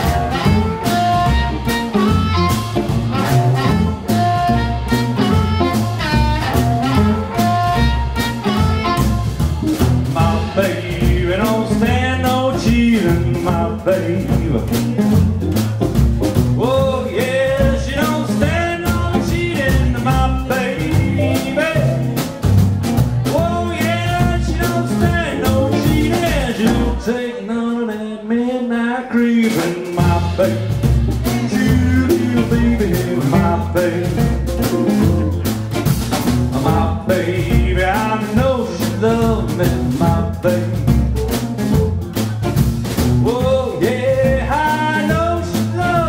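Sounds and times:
man singing: 0:00.0 - 0:09.1, 0:10.1 - 0:15.6, 0:16.4 - 0:22.5, 0:23.2 - 0:35.5, 0:36.5 - 0:42.3, 0:43.2 - 0:46.0
electric guitars: 0:00.0 - 0:11.9, 0:30.2 - 0:36.9
shuffling drum beat: 0:00.0 - 0:27.0, 0:29.4 - 0:46.0
upright double bass: 0:00.0 - 0:46.0.

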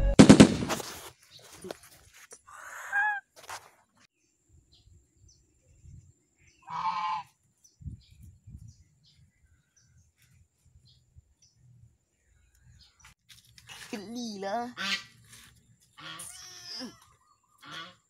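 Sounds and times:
goose honking: 0:06.6 - 0:07.3, 0:14.8 - 0:15.1, 0:16.0 - 0:16.8, 0:17.6 - 0:18.0.

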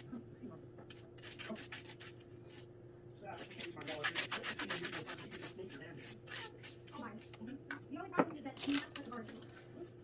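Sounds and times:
pastry brush rubbing strokes: 0:00.9 - 0:02.7, 0:03.4 - 0:07.2.

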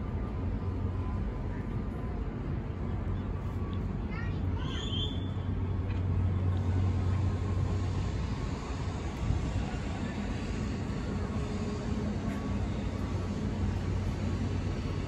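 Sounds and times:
low droning hum: 0:00.0 - 0:15.0
low outdoor rumble: 0:00.0 - 0:15.0.

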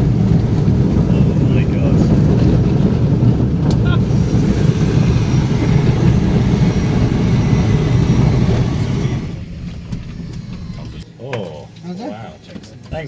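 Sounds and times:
airplane engines droning in cabin: 0:00.0 - 0:11.2.

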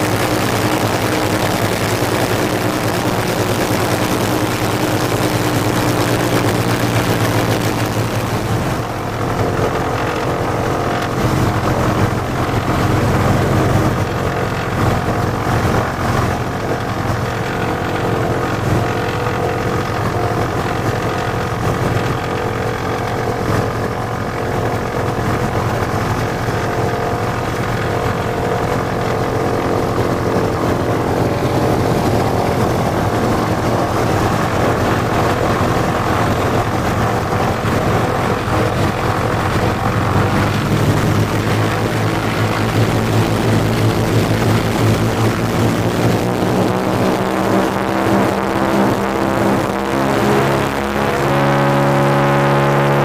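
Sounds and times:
radial aircraft engines running: 0:00.0 - 0:53.0.

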